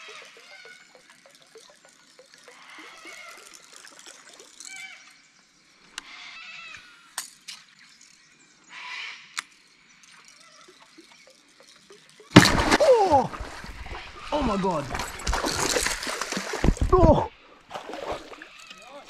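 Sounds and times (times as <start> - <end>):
splashy water gurgle: 12.2 - 19.0.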